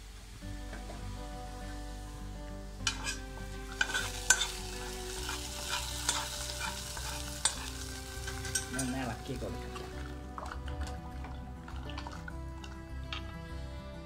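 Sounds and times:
hot oil sizzling: 0.0s - 13.6s
metal spatula scraping and clinking: 2.8s - 13.2s.

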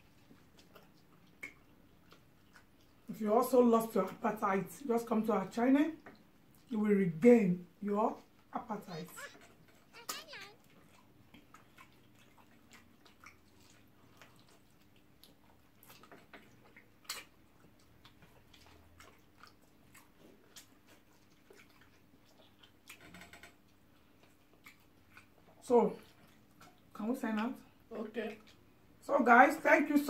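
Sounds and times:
chewing and mouth noises: 0.0s - 3.1s, 9.2s - 23.0s, 23.7s - 26.9s.

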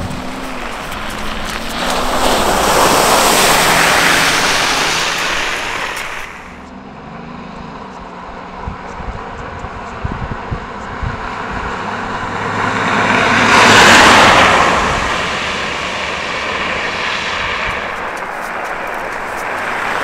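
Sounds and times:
tyres splashing through water: 0.0s - 6.6s, 12.2s - 20.0s
vehicle engine running: 0.0s - 20.0s.

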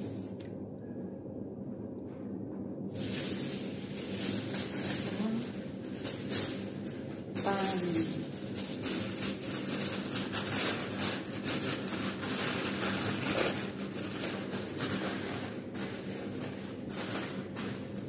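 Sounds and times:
aluminium foil crinkling: 3.0s - 18.0s.

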